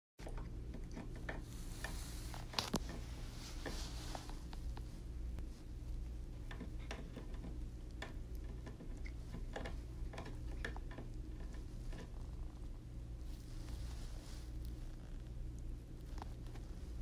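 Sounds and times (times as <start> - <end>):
cat teeth clicking on chair rail: 6.5 - 12.2.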